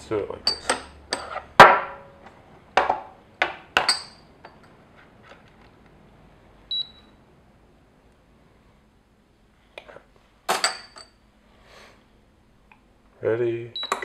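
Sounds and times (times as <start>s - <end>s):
digital scale beep: 6.7s - 7.2s.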